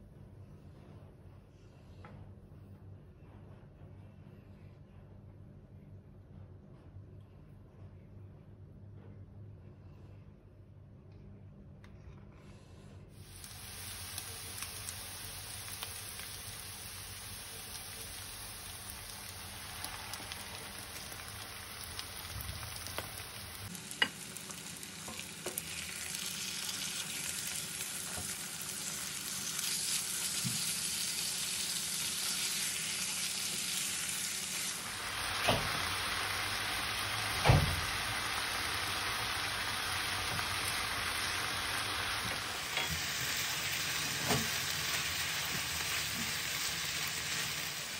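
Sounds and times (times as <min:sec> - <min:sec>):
food sizzling in a frying pan: 0:13.2 - 0:47.9.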